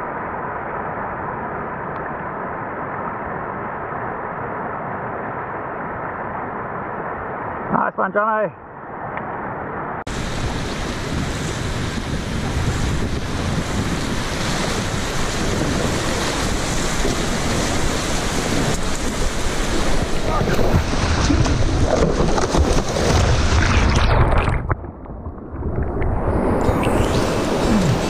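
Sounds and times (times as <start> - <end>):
rushing whitewater: 10.1 - 24.6, 26.4 - 28.0
water splashing: 10.1 - 28.0
wind buffeting microphone: 10.1 - 28.0.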